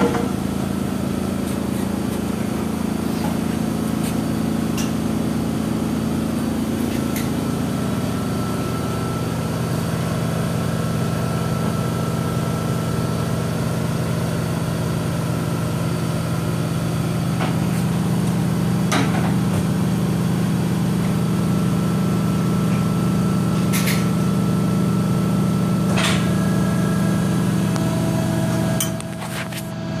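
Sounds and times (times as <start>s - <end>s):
machinery humming: 24.3s - 30.0s.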